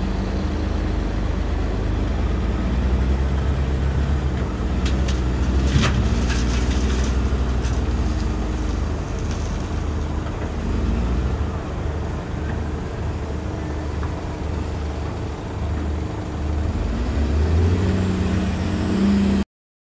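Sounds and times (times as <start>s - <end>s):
heavy diesel engines running: 0.0s - 19.4s
dirt and stones landing in metal: 4.8s - 10.2s.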